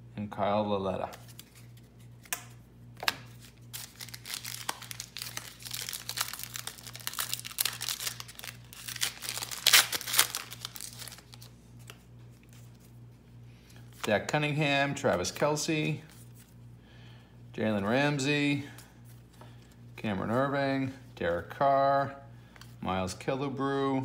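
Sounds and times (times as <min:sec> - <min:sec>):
foil wrapper crinkling and tearing: 0:03.3 - 0:12.0.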